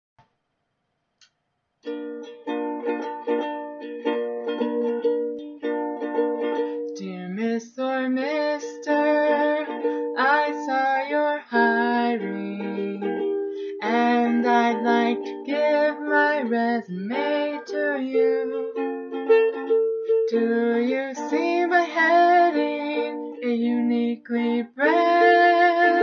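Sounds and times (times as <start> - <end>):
ukulele strumming: 1.8 - 26.0
woman singing: 6.9 - 18.8, 20.3 - 26.0.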